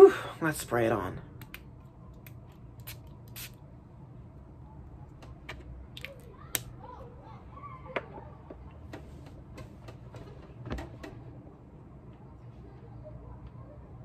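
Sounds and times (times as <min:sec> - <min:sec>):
atomizer spray puffs: 0:02.8 - 0:03.6.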